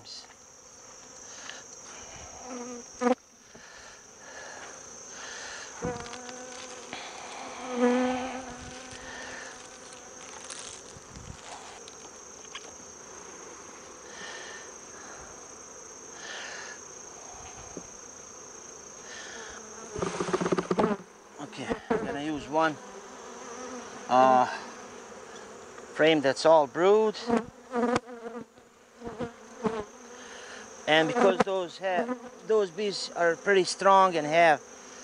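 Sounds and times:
high-pitched insect trill: 0.0s - 24.8s, 29.1s - 35.0s
bees buzzing: 0.4s - 35.0s
sharp knocks: 20.0s - 20.9s.

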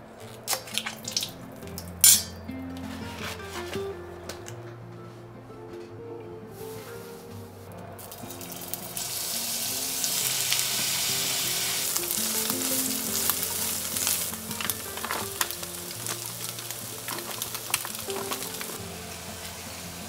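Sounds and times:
soft background music: 0.0s - 20.0s
food sizzling in frying pan: 8.0s - 20.0s.

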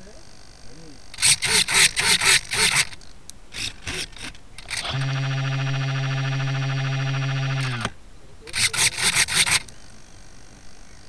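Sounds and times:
hand saw cutting wood: 1.2s - 3.0s, 8.5s - 9.7s
loud droning tone: 4.6s - 8.0s.

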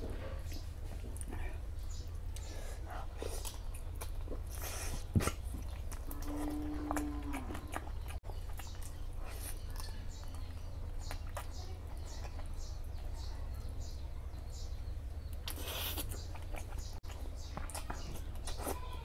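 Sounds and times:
wet chewing: 0.5s - 14.0s, 14.6s - 19.0s
lip smacks and mouth clicks: 6.9s - 11.6s, 15.3s - 18.8s.

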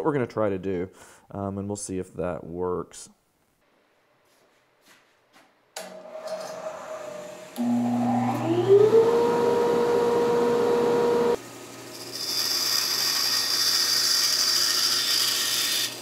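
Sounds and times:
band saw motor whine: 5.9s - 13.3s.

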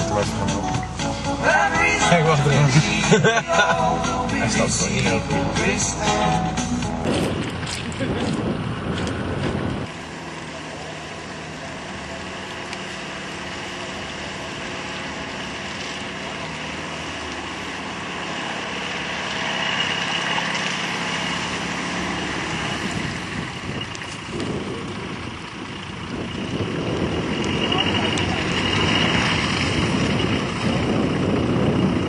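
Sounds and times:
distant off-road vehicle engine: 0.0s - 32.0s
wind noise on microphone: 5.5s - 9.9s, 22.2s - 32.0s.

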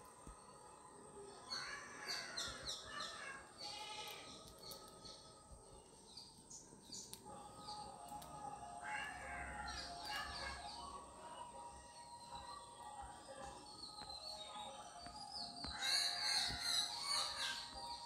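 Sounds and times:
birds chirping: 0.0s - 18.0s
harsh bird calls: 15.4s - 18.0s.

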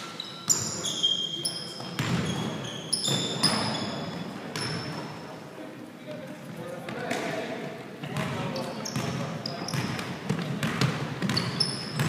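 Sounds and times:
sneakers squeaking on gym floor: 0.0s - 5.3s, 8.1s - 12.0s
basketball bouncing: 2.0s - 2.4s, 9.0s - 12.0s.

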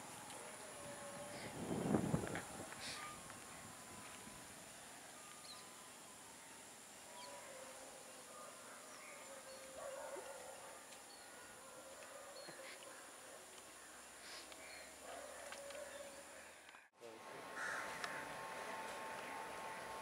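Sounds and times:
bird chirps: 5.2s - 5.8s.

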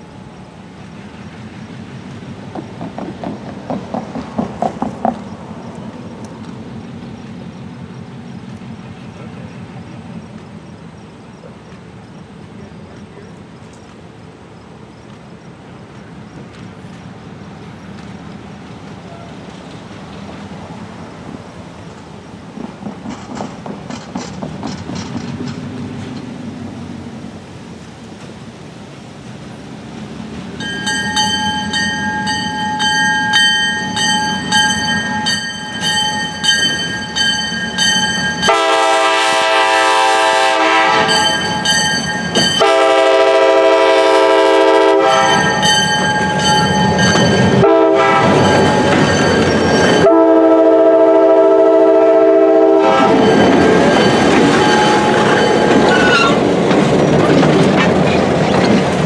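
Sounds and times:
train passing by: 0.0s - 59.0s
locomotive bell ringing: 30.6s - 39.0s, 41.0s - 43.1s, 45.0s - 50.3s, 52.8s - 56.4s
locomotive horn blasts: 38.4s - 41.8s, 42.6s - 45.8s, 47.5s - 49.0s, 50.0s - 53.6s.

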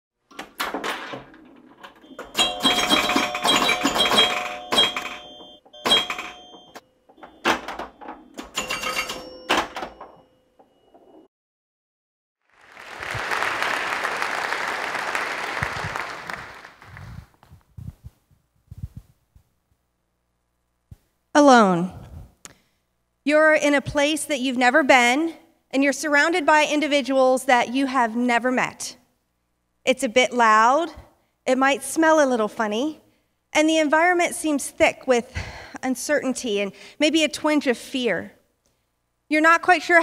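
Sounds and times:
audience applauding: 12.5s - 17.3s.

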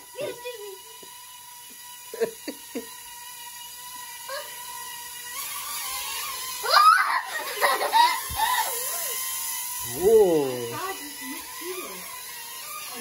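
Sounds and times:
toy drone propellers whining: 0.0s - 13.0s
girl squealing: 6.6s - 9.2s.

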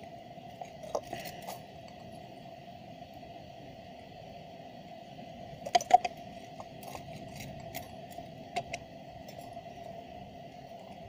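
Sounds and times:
faint background drone: 0.0s - 11.0s.

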